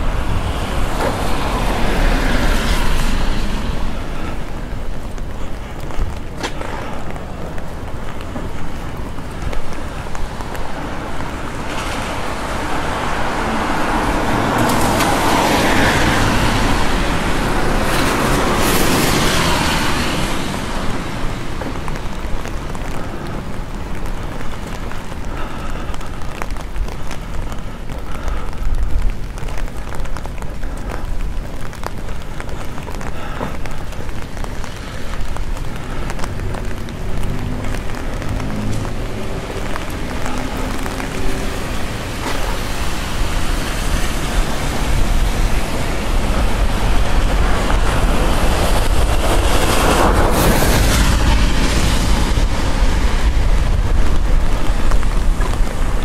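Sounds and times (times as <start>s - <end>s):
street traffic rumble: 0.0s - 56.0s
vehicle passing close by: 36.2s - 55.7s.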